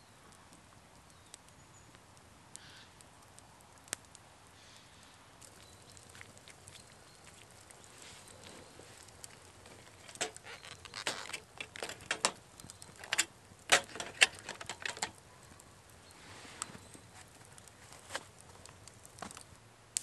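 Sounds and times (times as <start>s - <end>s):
metal tin clicking and scraping: 9.7s - 15.2s.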